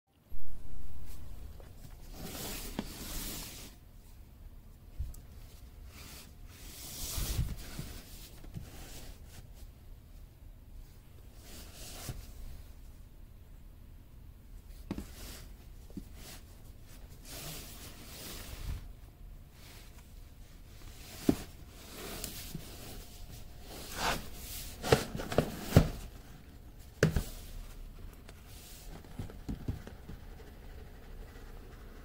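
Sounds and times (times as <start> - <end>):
cardboard sliding and scraping: 1.0 - 3.8, 5.9 - 9.4, 11.4 - 12.4, 17.2 - 18.9, 20.6 - 32.0
sharp knocks and taps on cardboard: 29.0 - 30.2.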